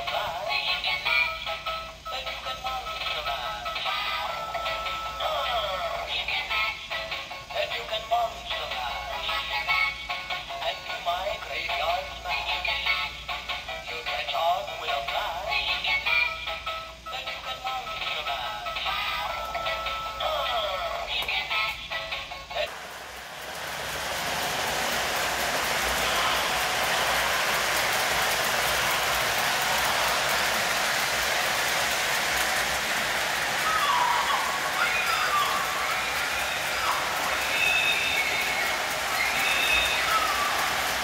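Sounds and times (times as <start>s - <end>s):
tinny music with synthesized voice: 0.0s - 9.9s, 17.1s - 41.0s
model train rolling on track: 22.6s - 41.0s.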